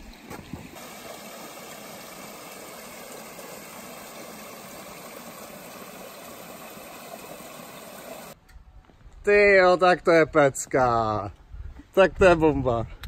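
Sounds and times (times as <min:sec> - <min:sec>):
stream rushing over stones: 0:00.0 - 0:08.4.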